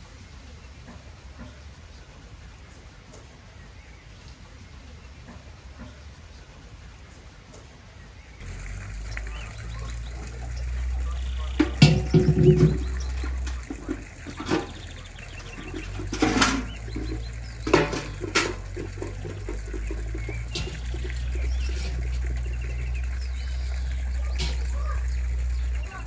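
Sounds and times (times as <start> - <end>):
birds chirping faintly: 8.2 - 26.0
buckets knocking and scraping: 8.4 - 26.0.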